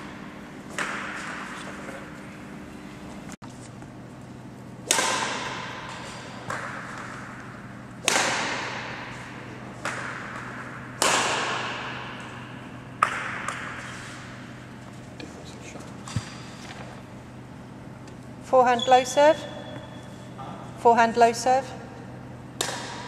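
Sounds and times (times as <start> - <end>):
rackets hitting shuttlecock: 0.7 - 1.6, 4.8 - 14.7, 22.6 - 23.0.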